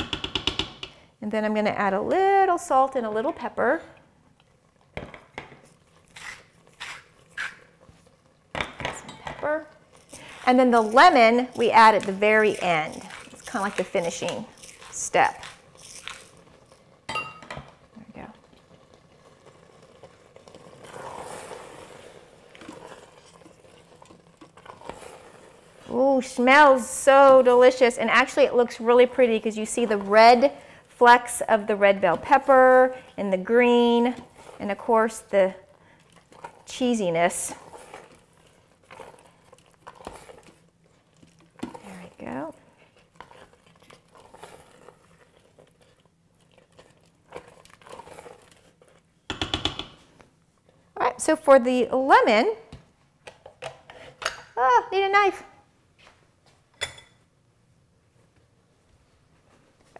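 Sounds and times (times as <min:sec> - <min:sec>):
spatula scraping in pot: 0:05.8 - 0:08.2, 0:09.9 - 0:16.9, 0:18.5 - 0:30.8, 0:31.5 - 0:49.2.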